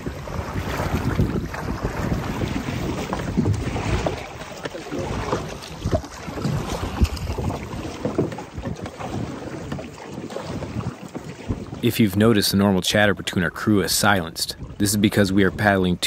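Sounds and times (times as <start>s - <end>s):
paddles splashing: 0.0s - 16.0s
water slapping a canoe: 0.0s - 16.0s
wind buffeting microphone: 0.0s - 16.0s
knocks on canoe: 0.3s - 11.8s.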